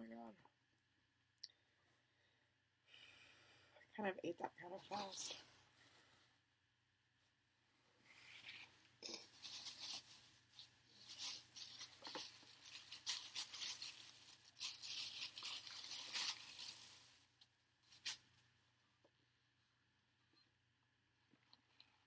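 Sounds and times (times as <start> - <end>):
paper wrapper crumpling: 8.3 - 17.2.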